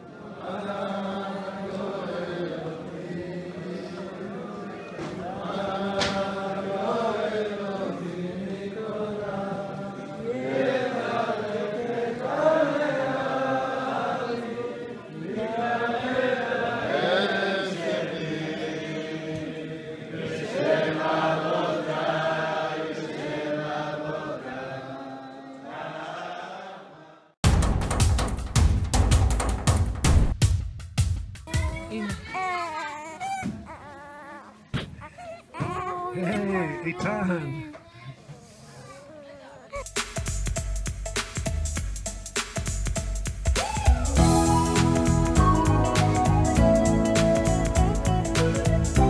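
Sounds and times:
men singing a chant: 0:00.3 - 0:27.2.

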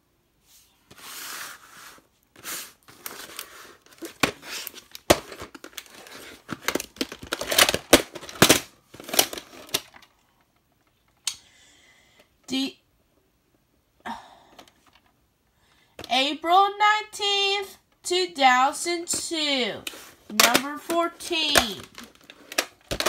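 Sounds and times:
plastic clacks: 0:19.9 - 0:23.0.

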